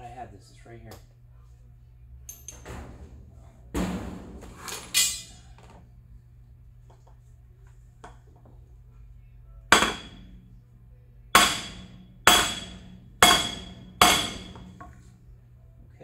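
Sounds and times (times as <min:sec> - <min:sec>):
hammer striking wooden block: 0:09.7 - 0:10.2, 0:11.4 - 0:14.6.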